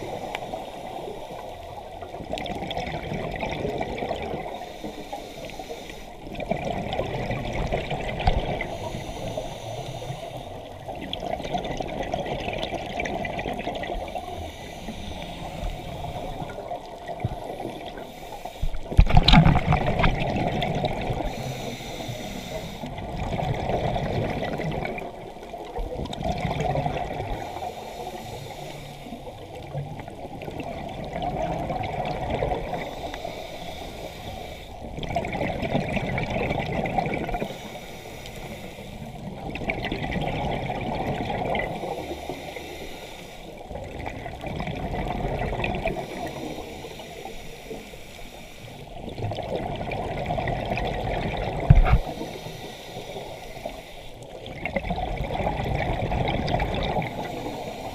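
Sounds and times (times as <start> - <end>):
diver exhaling bubbles underwater: 2.1 - 4.5, 6.3 - 8.8, 18.8 - 21.4, 23.0 - 25.2, 25.9 - 27.4, 30.3 - 32.9, 35.0 - 37.5, 39.2 - 41.9, 43.9 - 46.2, 49.0 - 52.2, 54.4 - 57.5.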